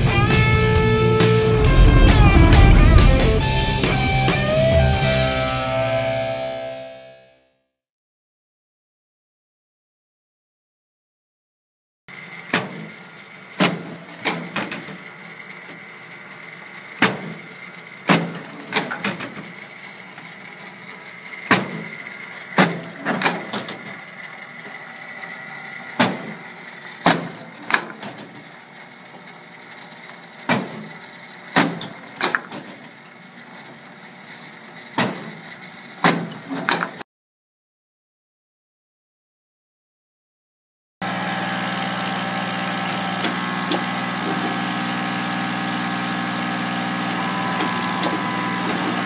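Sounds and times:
laminator humming with whine: 0:12.1 - 0:37.0, 0:41.0 - 0:49.0.

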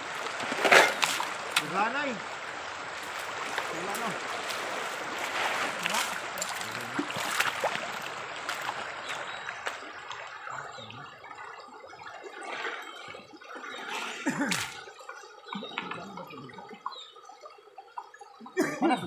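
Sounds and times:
water splashing over wooden box: 0:00.0 - 0:11.3.

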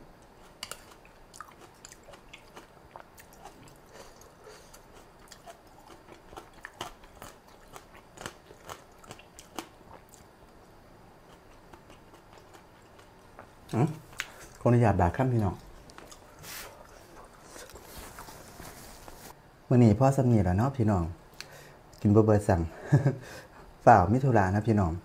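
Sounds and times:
person chewing noodles: 0:00.4 - 0:10.3, 0:11.2 - 0:14.6, 0:15.4 - 0:18.5.

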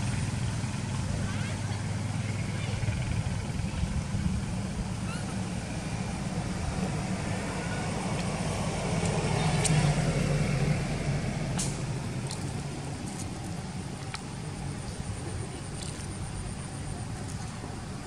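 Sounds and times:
low motor rumble: 0:00.0 - 0:18.0.

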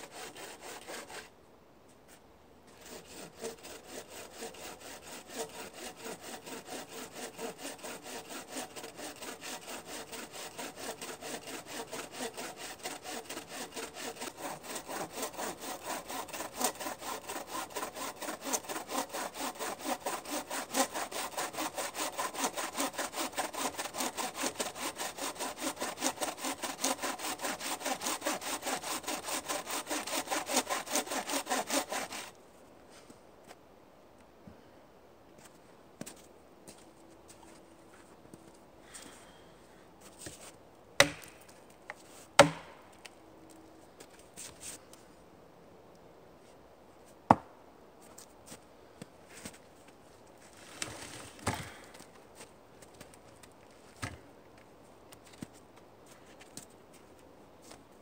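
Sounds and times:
bow saw cutting log: 0:00.0 - 0:01.3, 0:02.7 - 0:32.4, 0:42.4 - 0:42.7.

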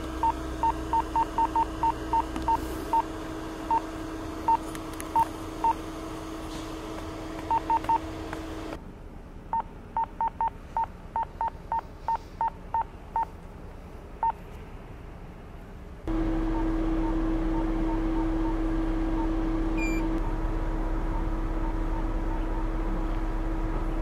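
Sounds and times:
steady hum: 0:00.0 - 0:09.9, 0:16.0 - 0:24.0
short electronic beeps: 0:16.6 - 0:20.1.

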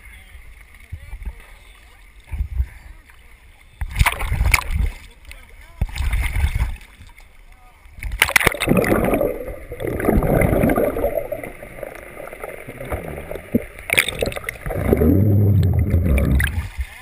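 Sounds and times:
underwater sloshing and gurgling: 0:00.0 - 0:17.0
low hum: 0:08.6 - 0:16.8.

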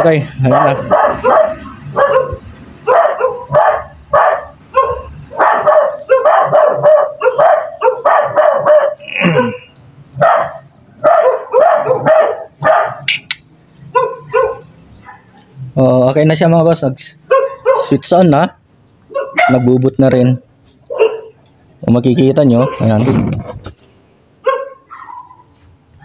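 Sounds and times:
dog barking: 0:00.4 - 0:13.1, 0:13.9 - 0:15.4, 0:17.3 - 0:18.1, 0:19.1 - 0:19.7, 0:20.9 - 0:21.4, 0:22.5 - 0:22.9, 0:24.4 - 0:25.6.

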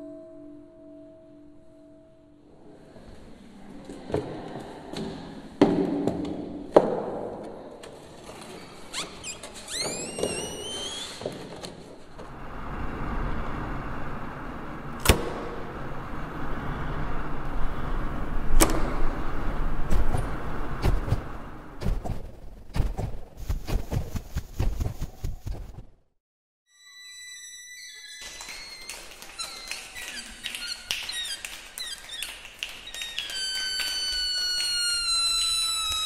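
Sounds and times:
low rumble: 0:12.2 - 0:22.9
rising whistle-like glides: 0:26.7 - 0:31.4, 0:32.8 - 0:36.0.

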